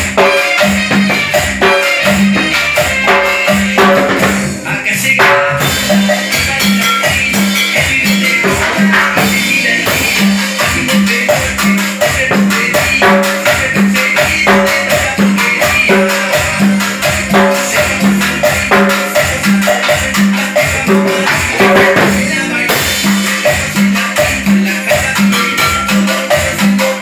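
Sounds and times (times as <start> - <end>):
cowbell struck with sticks: 0.0 - 4.5, 5.2 - 22.2
latin dance song with shaker: 0.0 - 27.0.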